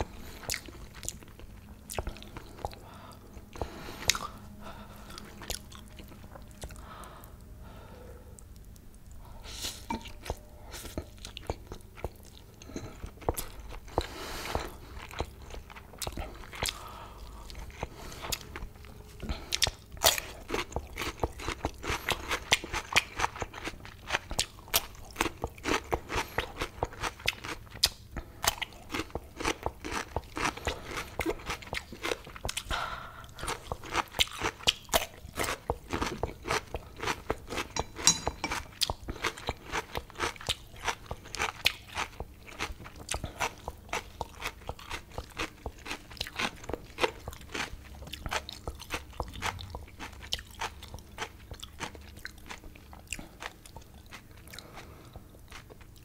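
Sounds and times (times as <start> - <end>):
crunching cucumber: 19.5 - 32.7.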